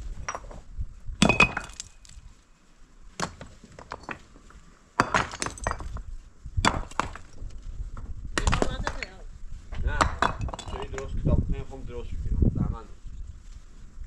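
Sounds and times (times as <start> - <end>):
stones knocking together: 1.2 - 2.2, 3.2 - 11.2.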